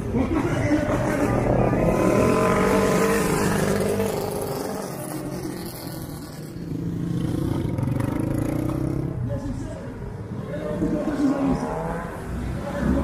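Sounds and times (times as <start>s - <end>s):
small motorcycles driving past: 0.0s - 9.3s.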